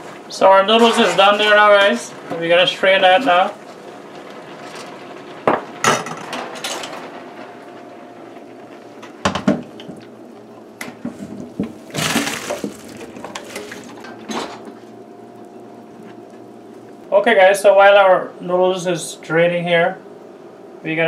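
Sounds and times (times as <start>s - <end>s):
water and pasta splashing into colander: 0.0s - 3.7s, 11.6s - 14.2s.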